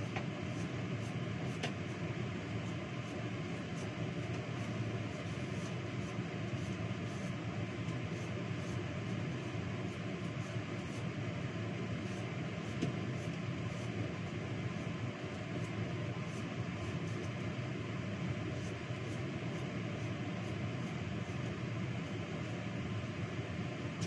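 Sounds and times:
ventilation fan humming: 0.0 - 24.0.

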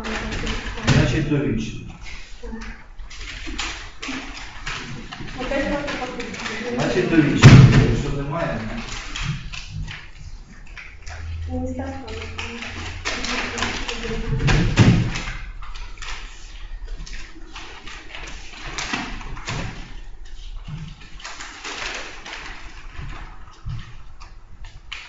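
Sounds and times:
papers rustling: 0.0 - 25.0
heavy thud: 6.9 - 8.4.

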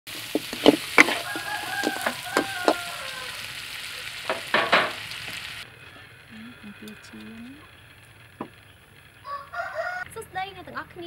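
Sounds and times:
spatula scraping and clicking on wok: 0.1 - 3.2
meat sizzling in sauce: 0.1 - 5.7.

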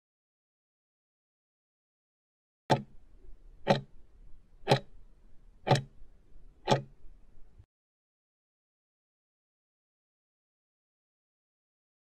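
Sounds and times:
clock ticks: 2.7 - 3.0, 3.6 - 4.0, 4.6 - 5.0, 5.6 - 6.0, 6.6 - 7.0.

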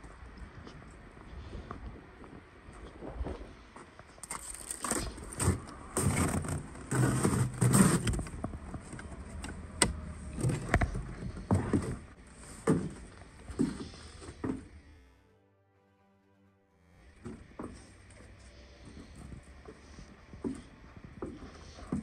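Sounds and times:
footsteps crunching through snow: 0.4 - 8.9.

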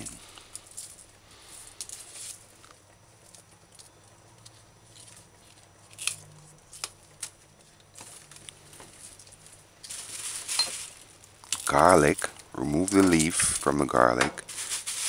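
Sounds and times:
hands tearing scallion leaves: 1.6 - 9.4, 11.1 - 13.8
plastic bag rustling: 4.8 - 15.0.

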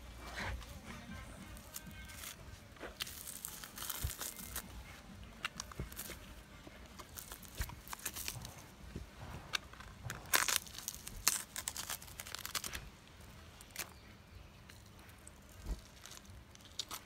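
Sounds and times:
fish skin tearing: 10.3 - 12.8.

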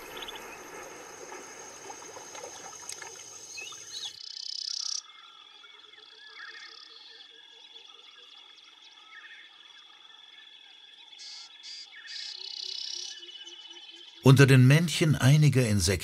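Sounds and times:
background music: 14.3 - 16.0.

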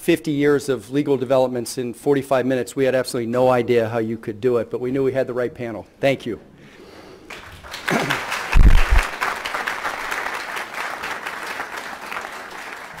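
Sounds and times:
audience applauding: 7.3 - 13.0
low thump: 8.6 - 9.1.

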